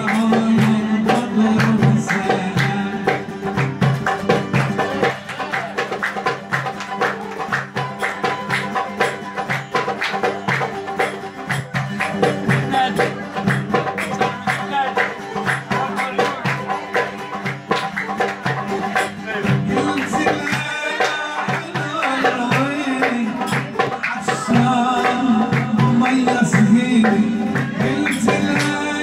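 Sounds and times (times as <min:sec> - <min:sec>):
man singing: 0:00.0 - 0:03.9, 0:19.2 - 0:29.0
lute strummed rhythmically: 0:00.0 - 0:29.0.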